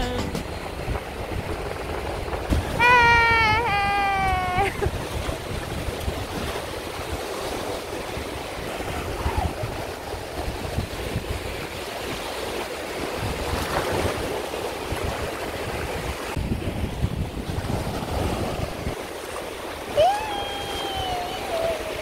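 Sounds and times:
high held voice: 0.0 - 0.5, 2.8 - 4.8, 20.0 - 22.0
surf breaking on beach: 0.0 - 22.0
wind buffeting microphone: 0.0 - 22.0.

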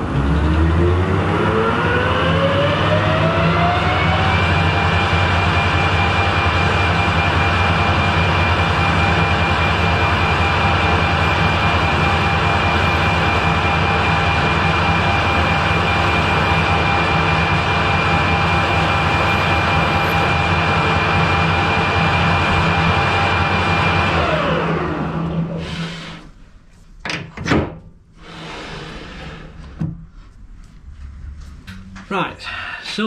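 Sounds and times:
metal lathe humming and whining: 0.0 - 26.2.

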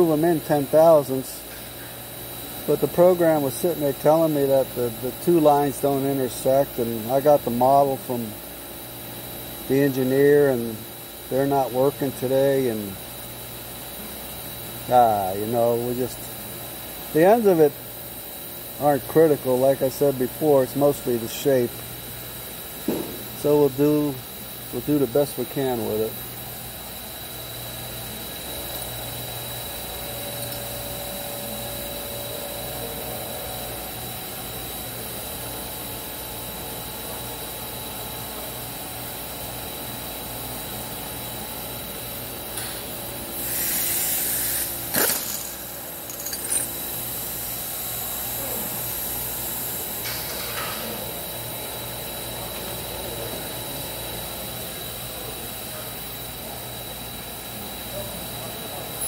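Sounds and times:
shop machinery humming: 0.0 - 59.0
burst of hiss: 43.4 - 45.1.

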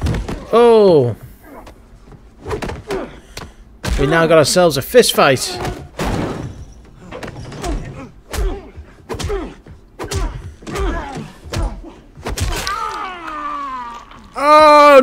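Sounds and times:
punches landing: 0.0 - 0.6, 1.5 - 4.3, 5.6 - 13.4
man grunting and groaning: 2.6 - 3.2, 7.6 - 15.0.

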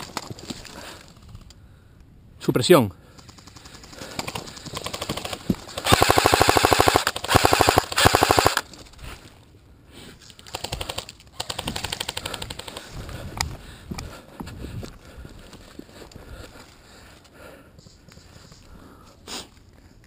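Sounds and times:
faint distant rapid firing: 3.1 - 8.6
airsoft rifle automatic fire: 3.2 - 8.6.

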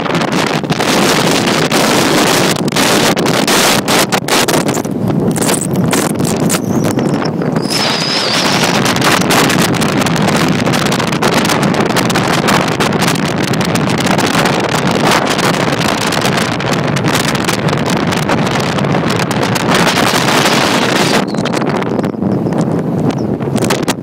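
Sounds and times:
wind buffeting microphone: 0.0 - 24.0
heavy surf breaking: 7.2 - 21.6.

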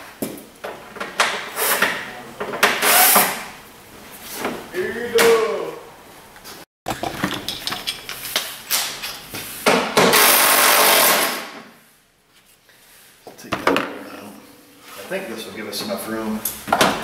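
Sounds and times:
plastic fasteners clicking and knocking: 6.9 - 8.2.

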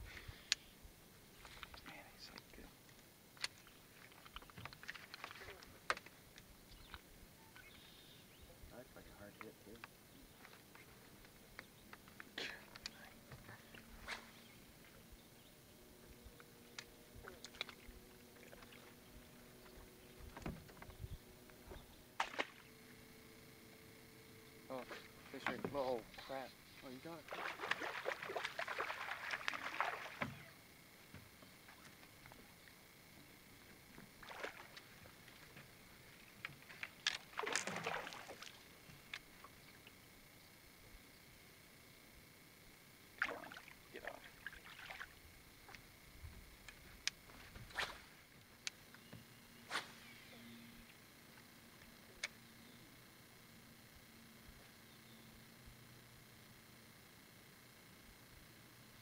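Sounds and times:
low steady hum: 0.0 - 59.0
fish splashing at the surface: 22.2 - 22.7, 27.2 - 30.5, 37.3 - 38.6, 43.2 - 45.2.

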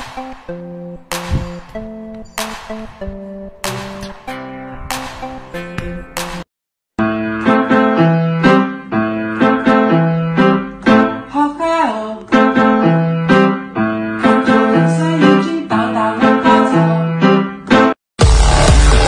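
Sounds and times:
bass line: 0.0 - 6.3, 18.2 - 19.0
melody of struck notes: 0.0 - 6.4.

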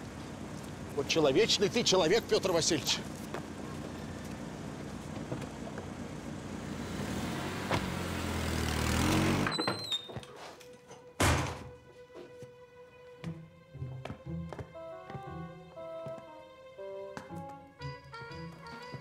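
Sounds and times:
car engine driving off: 0.0 - 9.7
soft music: 10.6 - 19.0
short loud thunk: 11.2 - 11.7.

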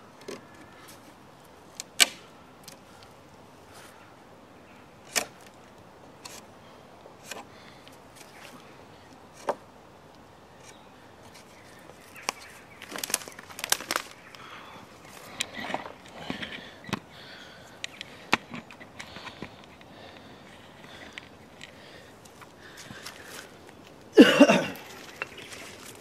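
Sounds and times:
rustling: 10.6 - 24.1, 24.7 - 26.0.

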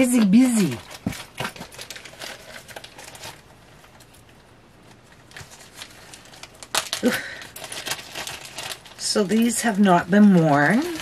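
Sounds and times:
packaging rustling and crinkling: 0.0 - 11.0.

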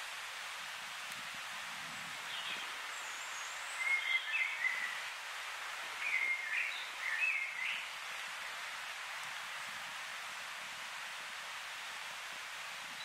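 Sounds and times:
steady background hiss: 0.0 - 13.0
songbird warbling: 2.3 - 5.0.

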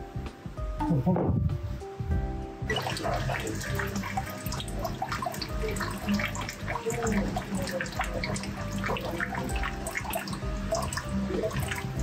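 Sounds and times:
water splashing and trickling: 2.7 - 12.0.

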